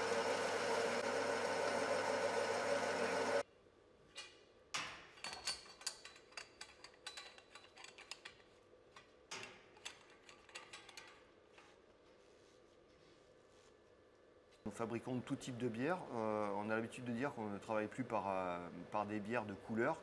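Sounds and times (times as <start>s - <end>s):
grain mill humming: 0.0s - 3.4s
metallic clicks and knocks on pipework: 4.2s - 8.4s.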